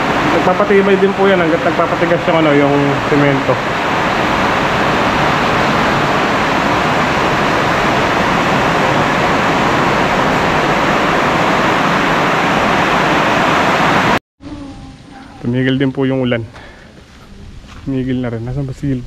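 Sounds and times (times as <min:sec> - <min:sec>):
heavy rain falling: 0:00.0 - 0:14.2.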